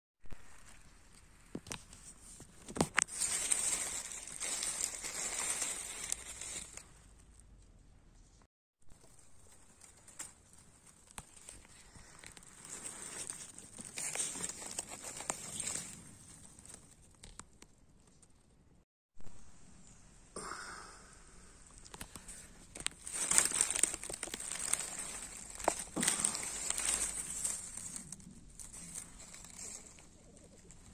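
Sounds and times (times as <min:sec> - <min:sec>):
dry leaves rustling: 0:00.4 - 0:07.2, 0:08.9 - 0:17.4, 0:21.9 - 0:30.9.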